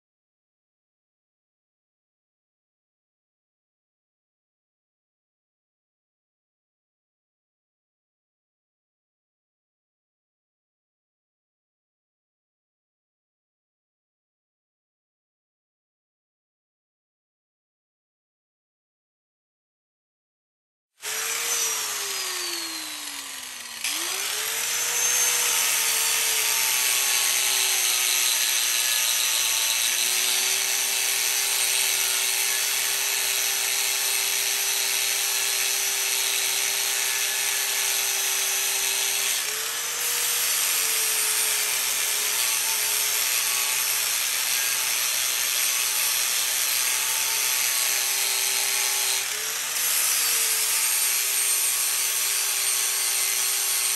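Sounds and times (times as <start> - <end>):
angle grinder motor whine: 21.0 - 30.6.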